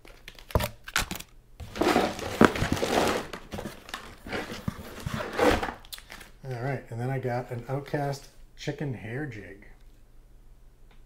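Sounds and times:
plastic packaging crinkling: 0:00.0 - 0:06.6.

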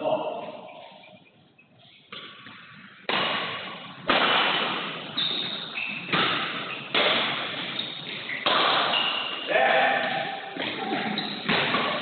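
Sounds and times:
rackets hitting shuttlecock: 0:02.1 - 0:12.0.

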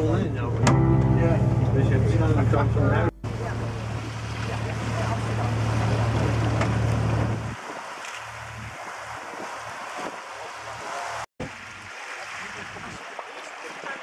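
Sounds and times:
boat engine humming: 0:00.0 - 0:09.8
rushing water: 0:03.1 - 0:14.0
wind on microphone: 0:03.2 - 0:13.0.

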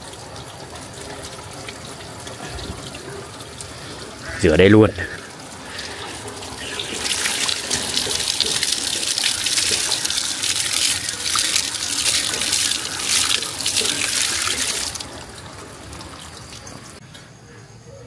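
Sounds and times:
water running from a tap: 0:00.0 - 0:17.0
water splashing: 0:00.0 - 0:17.0.

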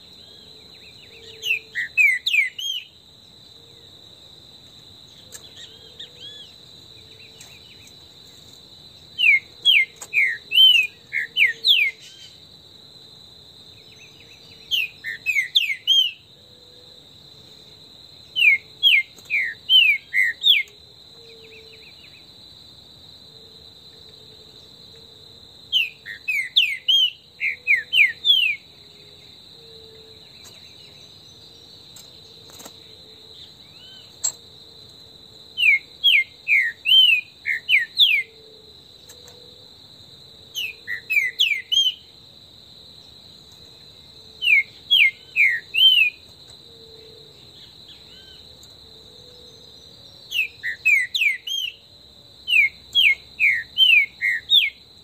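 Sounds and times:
high insect drone: 0:00.0 - 0:55.0
bird singing whistled notes: 0:00.2 - 0:03.0, 0:05.2 - 0:07.9, 0:09.1 - 0:12.4, 0:13.8 - 0:16.3, 0:18.3 - 0:22.3, 0:25.7 - 0:28.7, 0:35.6 - 0:38.4, 0:40.6 - 0:42.1, 0:44.4 - 0:46.2, 0:49.3 - 0:51.8, 0:52.5 - 0:54.8.

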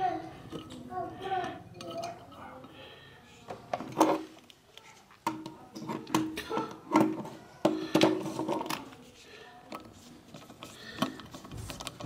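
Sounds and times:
screws clinking on metal cover: 0:01.7 - 0:02.7.

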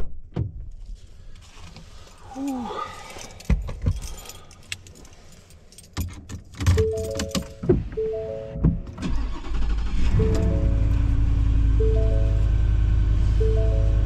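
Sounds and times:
keys clicking and clattering: 0:02.4 - 0:07.6
three-note warning chime: 0:06.8 - 0:08.8, 0:10.1 - 0:14.0
truck engine starting and idling: 0:06.8 - 0:14.0.

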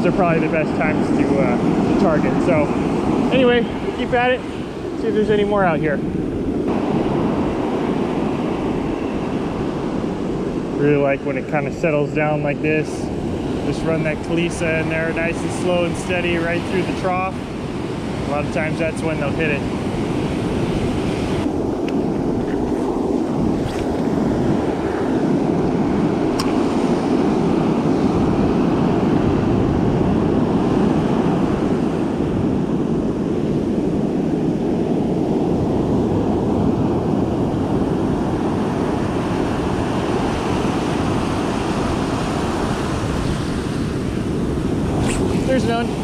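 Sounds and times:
ocean surf breaking: 0:00.0 - 0:46.0.

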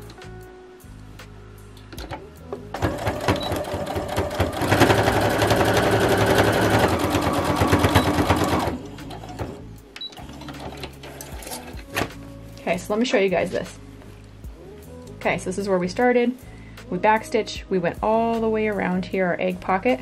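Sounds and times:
sewing machine stitching: 0:02.7 - 0:09.6.

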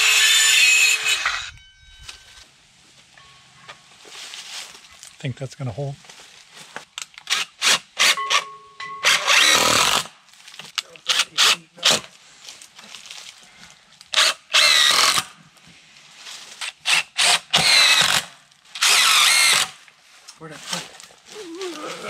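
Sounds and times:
power drill bursts: 0:00.0 - 0:01.5, 0:09.0 - 0:10.1, 0:14.2 - 0:15.3, 0:16.8 - 0:19.8.

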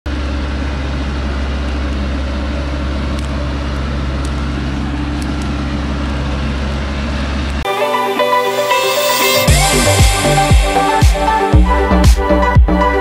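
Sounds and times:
truck engine under load: 0:00.1 - 0:07.7.

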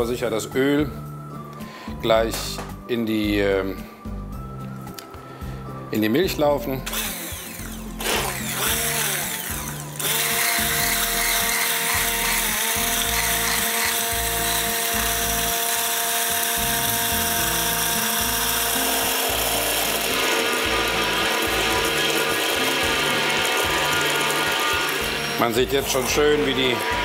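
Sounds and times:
stick blender running: 0:06.8 - 0:27.0.

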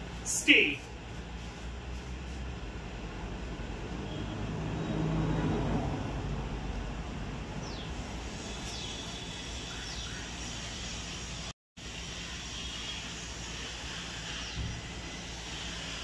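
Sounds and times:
outdoor background rumble: 0:00.0 - 0:16.0.

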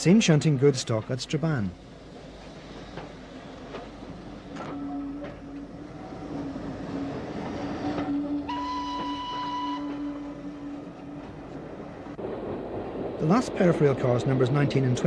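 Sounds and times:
steady low tone: 0:01.6 - 0:15.0
steam locomotive whistle: 0:04.5 - 0:11.6.

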